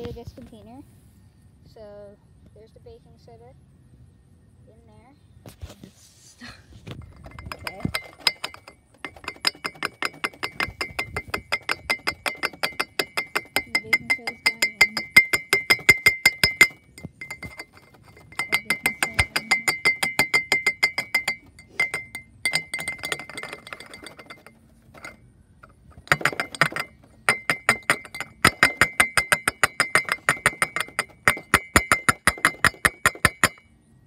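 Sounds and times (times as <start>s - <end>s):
funnel clinking against glass flask: 7.0s - 25.2s.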